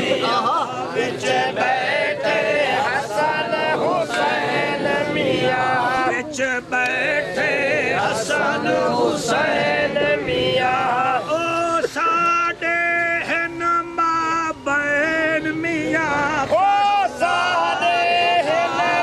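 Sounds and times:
man singing: 0:05.5 - 0:08.0, 0:09.8 - 0:19.0.

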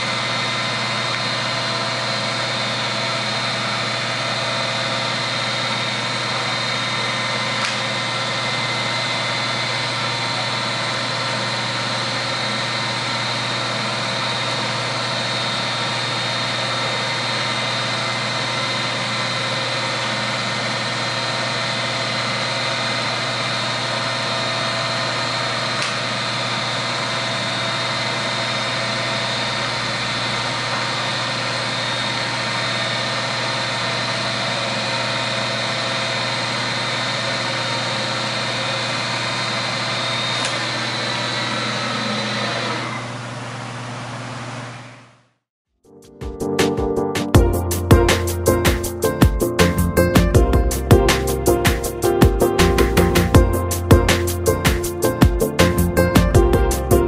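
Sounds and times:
milling machine motor whining: 0:00.0 - 0:45.2.

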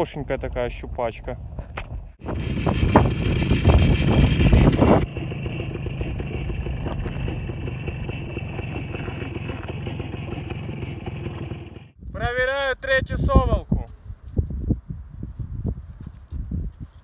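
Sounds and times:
motorcycle engine running: 0:02.2 - 0:12.0.

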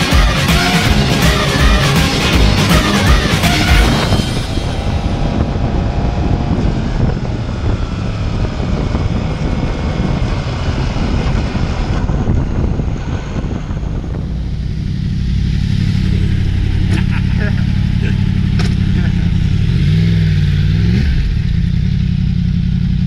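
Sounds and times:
motorcycle engine revving: 0:00.0 - 0:23.0
wind rush on microphone: 0:02.1 - 0:20.2.

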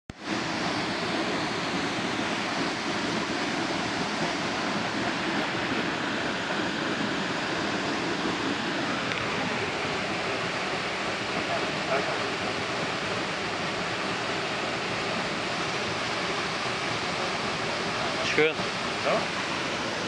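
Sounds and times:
waterfall rushing into pool: 0:00.1 - 0:20.0.

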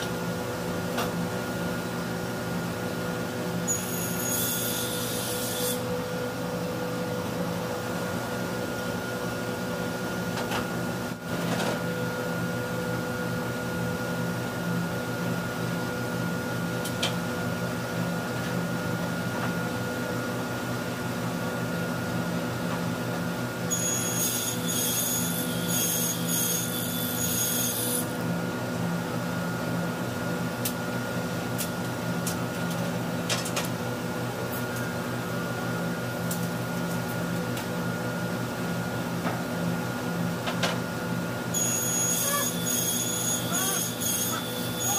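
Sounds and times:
table saw motor hum: 0:41.5 - 0:44.9.

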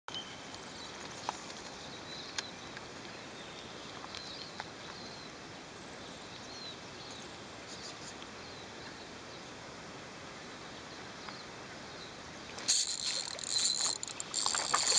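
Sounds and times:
soft steady hiss: 0:00.2 - 0:14.9
small birds chirping: 0:11.2 - 0:14.9
sharp clicks: 0:12.6 - 0:14.9.

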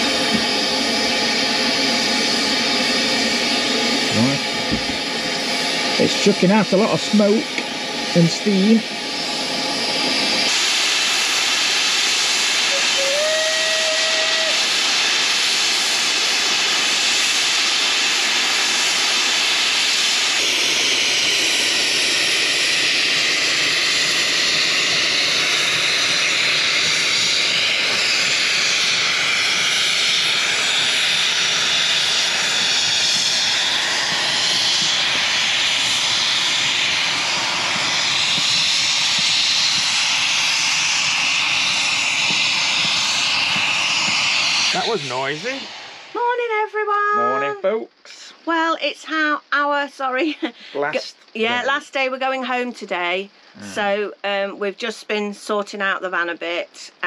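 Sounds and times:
steam locomotive hissing: 0:00.0 - 0:48.5, 0:49.1 - 0:51.9, 0:53.1 - 0:55.6
steam whistle: 0:10.5 - 0:15.7.

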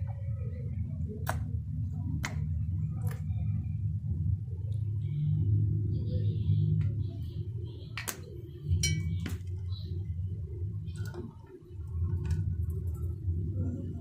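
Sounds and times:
low background rumble: 0:00.0 - 0:14.0
glass bottles clinking: 0:08.8 - 0:09.4.

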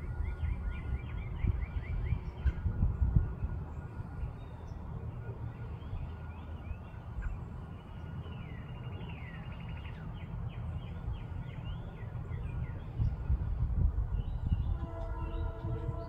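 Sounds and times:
songbirds chirping: 0:00.0 - 0:16.0.

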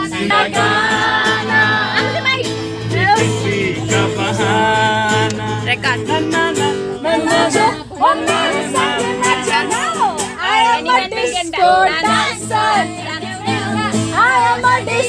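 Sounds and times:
people singing along: 0:00.0 - 0:15.0
strummed acoustic guitar: 0:00.0 - 0:15.0
man singing loudly: 0:03.0 - 0:09.8.

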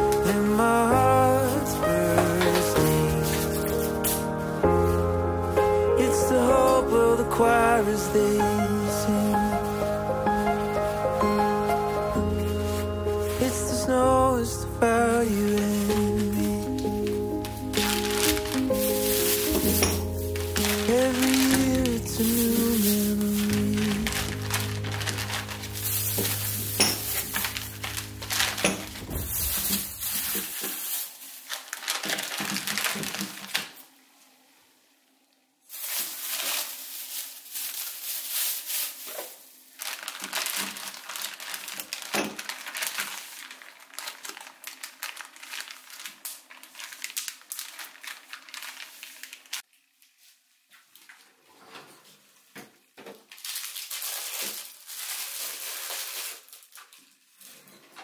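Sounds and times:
background music: 0:00.0 - 0:30.2
plastic bag crinkling: 0:00.0 - 0:33.9, 0:35.6 - 0:50.3, 0:53.2 - 0:57.7.

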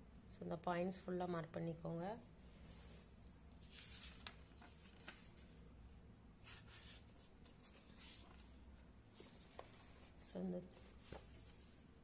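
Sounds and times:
paper pages rustling: 0:03.6 - 0:05.5, 0:06.4 - 0:08.6.

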